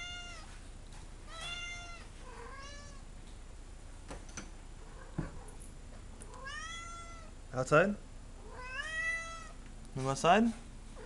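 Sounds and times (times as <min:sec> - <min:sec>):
cat meowing: 0:00.0 - 0:00.5, 0:01.3 - 0:03.0, 0:06.3 - 0:07.3, 0:08.4 - 0:09.6.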